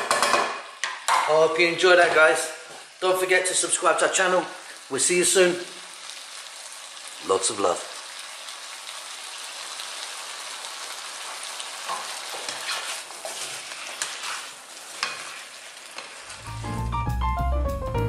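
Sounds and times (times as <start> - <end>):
food sizzling in frying pan: 0.0 - 17.0
spatula scraping pan: 11.9 - 16.4.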